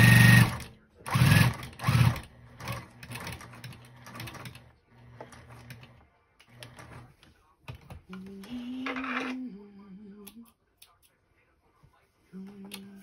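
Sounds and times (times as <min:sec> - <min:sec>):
sewing machine motor humming: 0:00.0 - 0:07.0.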